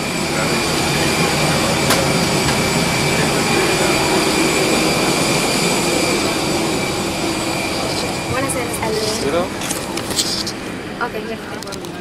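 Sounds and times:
high whine: 0.0 - 11.3
aircraft ground noise rumbling: 0.0 - 12.0.

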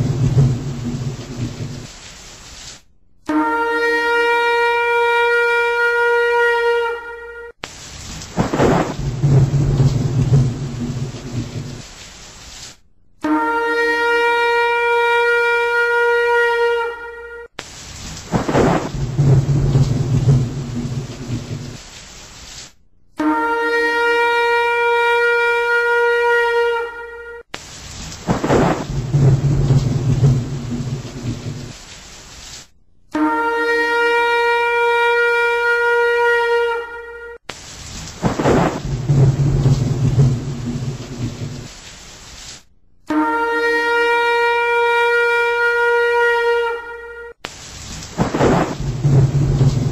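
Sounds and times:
thunder rolling: 0.0 - 2.0, 7.9 - 12.2, 17.8 - 22.0, 27.8 - 32.0, 37.8 - 42.1, 47.7 - 49.9
rain: 0.0 - 5.6, 7.6 - 12.9, 13.5 - 22.9, 23.6 - 32.8, 33.5 - 42.7, 43.6 - 49.9
long steady horn note: 3.2 - 7.6, 13.2 - 17.6, 23.1 - 27.5, 33.1 - 37.5, 43.0 - 47.4.

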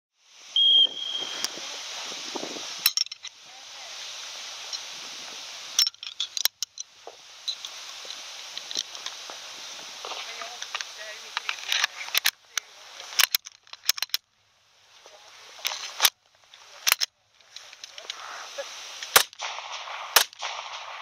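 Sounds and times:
steady hiss: 0.2 - 21.0
short high electronic beep: 0.6 - 1.4
metallic clicks of pistol assembly: 13.2 - 14.2, 16.8 - 18.2.

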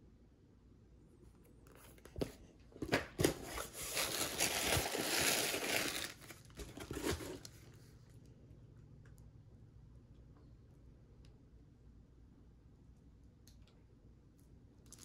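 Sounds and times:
bubble wrap crinkling: 3.4 - 7.8.

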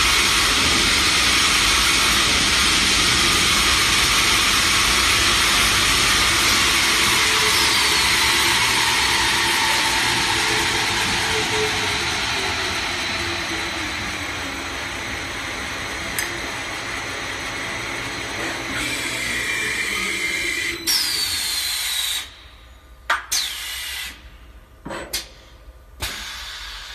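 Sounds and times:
tube spinning machine running: 0.0 - 21.6
compressed air hisses: 26.0 - 26.9.

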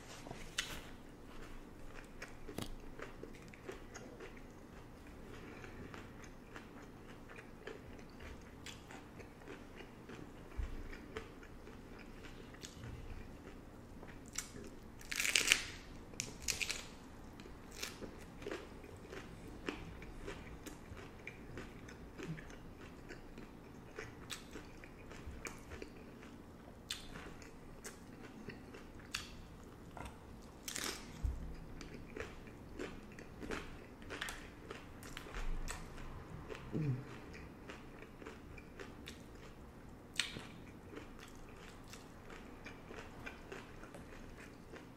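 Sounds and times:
taco shells crunching while chewed: 0.5 - 44.9.

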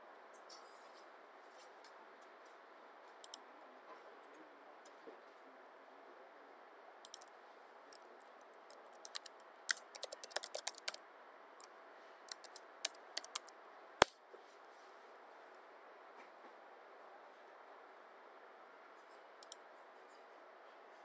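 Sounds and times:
keyboard typing: 7.0 - 7.3, 7.9 - 11.0, 12.3 - 14.2, 19.4 - 19.6.

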